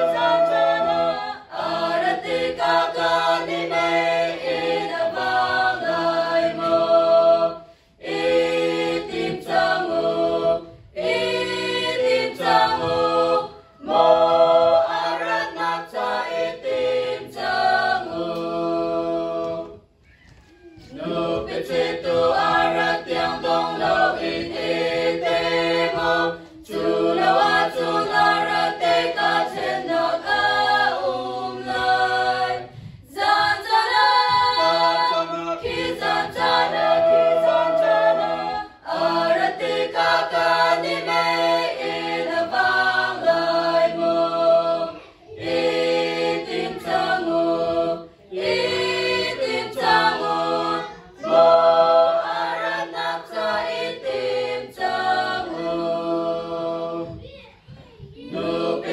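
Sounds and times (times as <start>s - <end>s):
women's choir singing a hymn: 0.0s - 19.9s, 20.9s - 57.2s, 58.2s - 58.9s.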